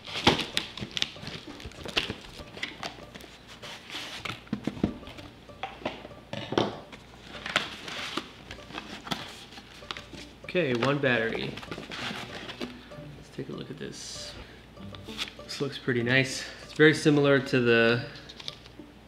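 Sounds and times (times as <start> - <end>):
handling cardboard and paper packaging: 0.0 - 12.8.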